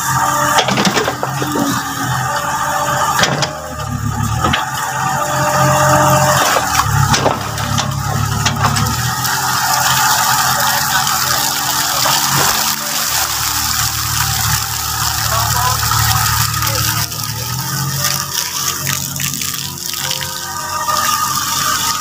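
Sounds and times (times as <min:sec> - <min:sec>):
diesel engine running: 0:00.0 - 0:20.2
hydraulic arm working: 0:00.0 - 0:20.2.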